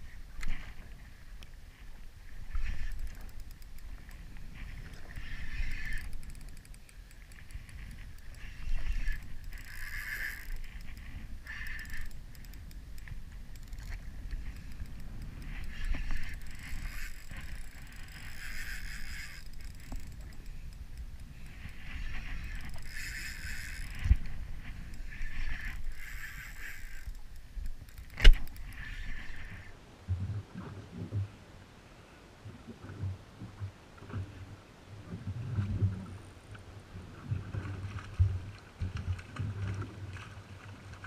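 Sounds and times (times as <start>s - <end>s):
wind and water rumble: 0.0s - 41.0s
fishing reel whirring: 2.4s - 29.7s.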